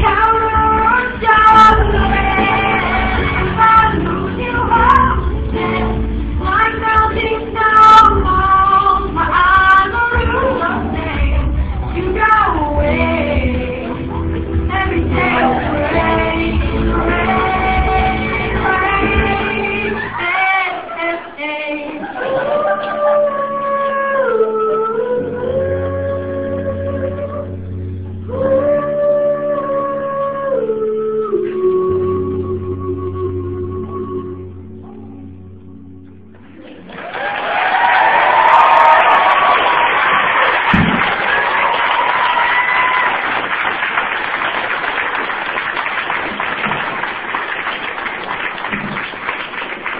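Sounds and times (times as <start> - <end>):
live pop ballad music: 0.0 - 43.1
audience applauding and cheering: 36.6 - 49.9.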